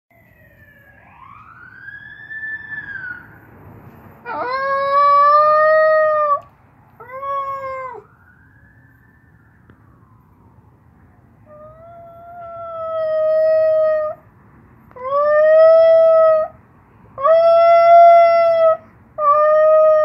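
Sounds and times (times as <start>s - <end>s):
siren wailing: 0.1s - 3.5s, 4.2s - 6.4s, 7.0s - 14.2s
dog howling: 4.2s - 6.4s, 7.0s - 8.1s, 11.5s - 14.2s, 15.0s - 16.6s, 17.2s - 20.0s.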